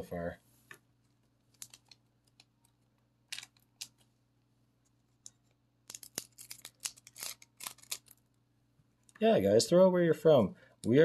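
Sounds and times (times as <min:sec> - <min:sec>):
cards and foil wrappers rustling: 0:01.5 - 0:02.5, 0:05.8 - 0:08.3.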